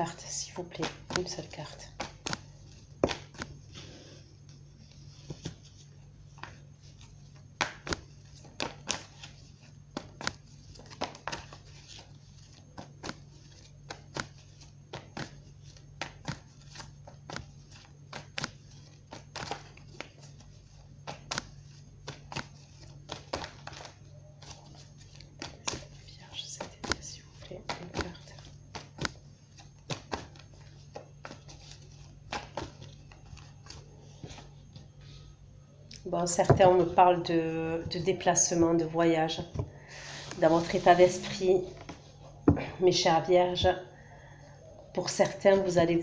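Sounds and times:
cards shuffling: 0.6 - 35.0, 40.1 - 42.2.

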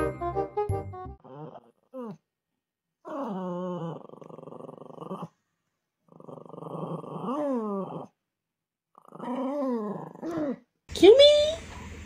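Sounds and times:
small dog growling and whining: 1.2 - 2.3, 3.0 - 5.4, 6.0 - 8.2, 8.9 - 10.8.

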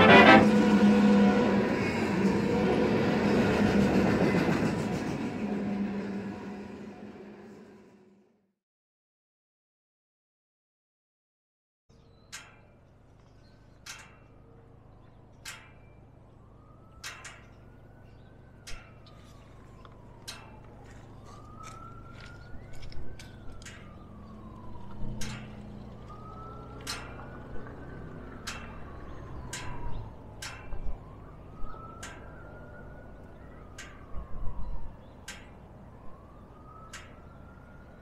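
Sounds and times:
diesel locomotives idling: 0.0 - 8.2, 16.1 - 31.2
distant siren wailing: 0.0 - 8.4, 14.1 - 38.0.

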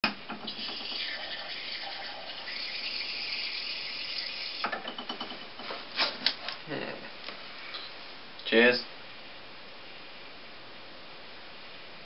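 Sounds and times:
beer pouring with hiss: 0.3 - 4.8.

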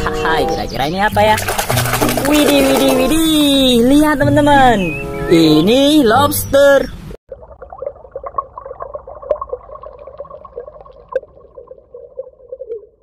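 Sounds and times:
underwater bubbling: 7.3 - 13.0.

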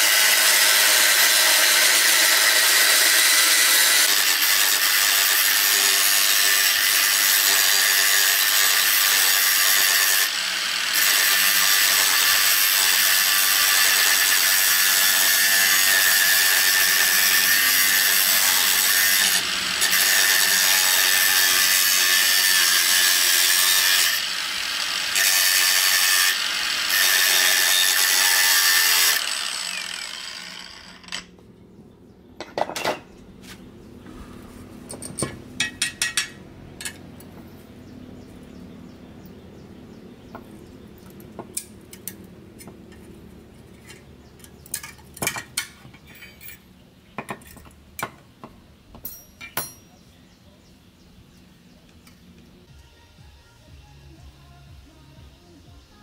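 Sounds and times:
angle grinder cutting steel: 0.0 - 31.3.

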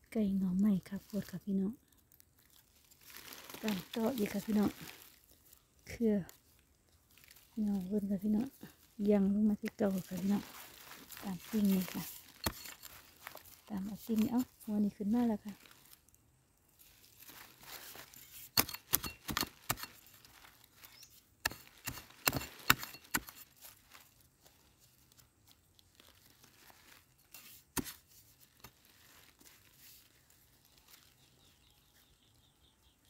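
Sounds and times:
soft scraping and crumbling: 0.7 - 32.4
digging tool striking soil: 9.6 - 13.4, 17.7 - 24.0, 27.3 - 28.8.

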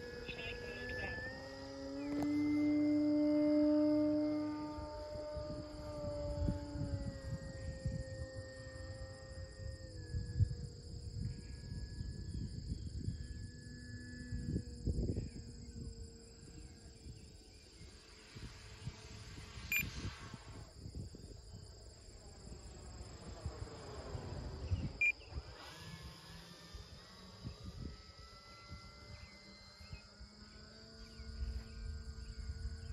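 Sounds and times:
wind buffeting microphone: 0.0 - 26.2
insects trilling: 0.0 - 32.9
model plane electric motor: 0.0 - 32.9.

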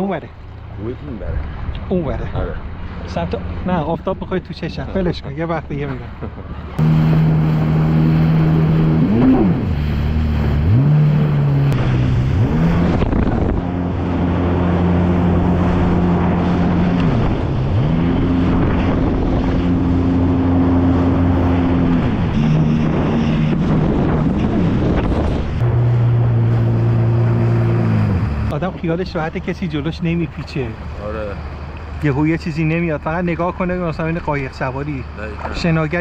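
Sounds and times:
jet ski engine running: 5.8 - 33.4
wind rushing: 6.8 - 28.5.

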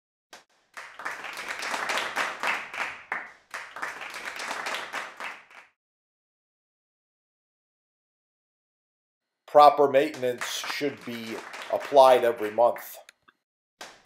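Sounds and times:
crowd applauding: 0.7 - 5.8, 9.5 - 13.0.

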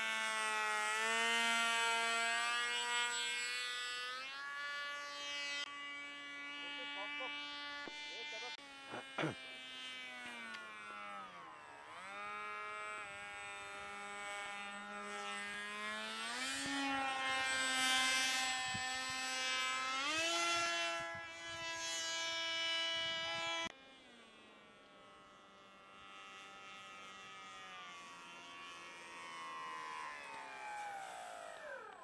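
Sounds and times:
model airplane motor buzzing: 0.0 - 32.0.

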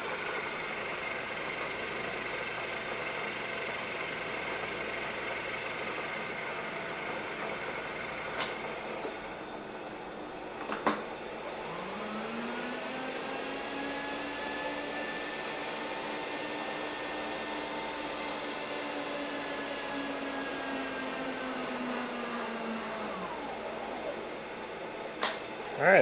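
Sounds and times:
milling machine cutting metal: 5.2 - 25.8
rising whine: 5.9 - 26.0.

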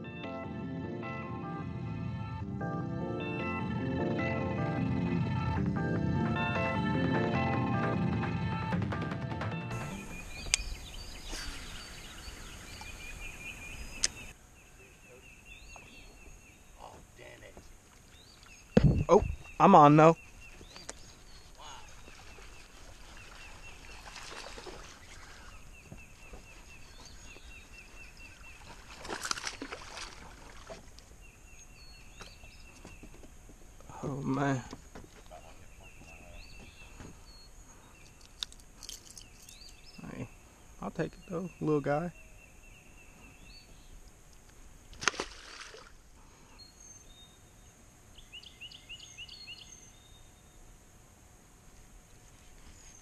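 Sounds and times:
bird singing rising notes: 9.6 - 16.8
fish splashing in water: 22.0 - 25.5, 28.5 - 30.9, 44.9 - 46.0.

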